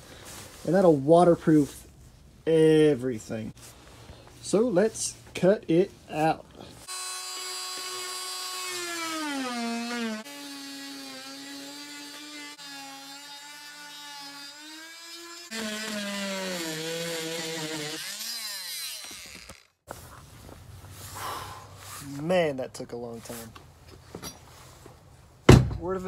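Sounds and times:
oscillating multi-tool cutting wood: 0:06.8 - 0:19.8.

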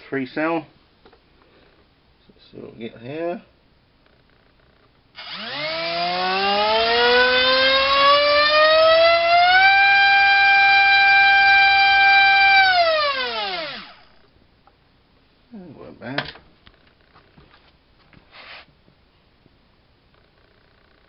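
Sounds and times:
electric motor propeller whine: 0:05.2 - 0:14.1.

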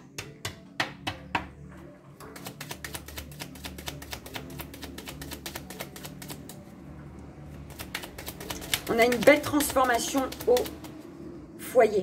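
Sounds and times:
quiet background music: 0:00.0 - 0:12.0
cards being shuffled: 0:02.2 - 0:06.6, 0:07.6 - 0:11.2.

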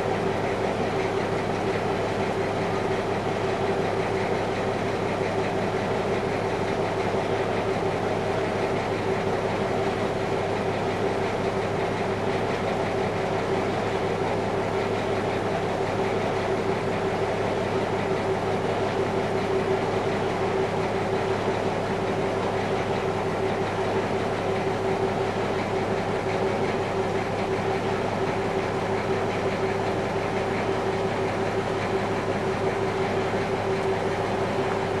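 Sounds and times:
boat engine droning: 0:00.0 - 0:35.0.

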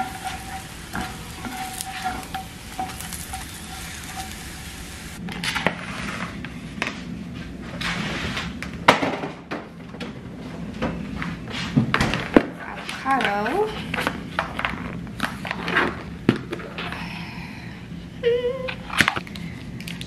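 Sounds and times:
spatula moving food: 0:00.0 - 0:05.2
tortillas sizzling in pan: 0:00.0 - 0:05.2.

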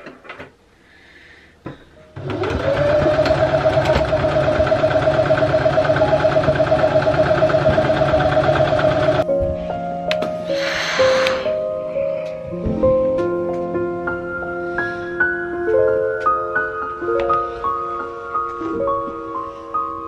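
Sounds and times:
sewing machine stitching: 0:02.2 - 0:09.2.

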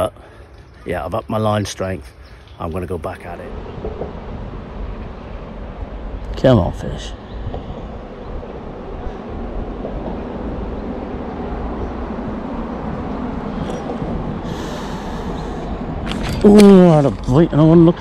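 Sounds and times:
low rumbling background noise: 0:00.0 - 0:18.0
hiss: 0:14.5 - 0:15.7.

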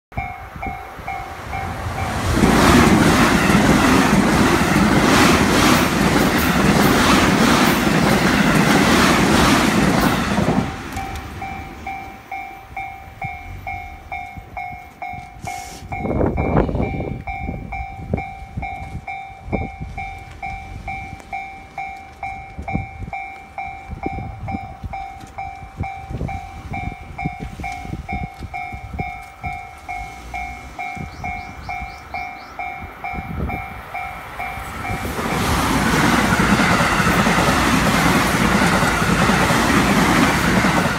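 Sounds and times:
electric train rushing past: 0:00.2 - 0:40.9
train wheels clattering on rails: 0:00.2 - 0:40.9
level crossing bell ringing: 0:10.9 - 0:35.1.

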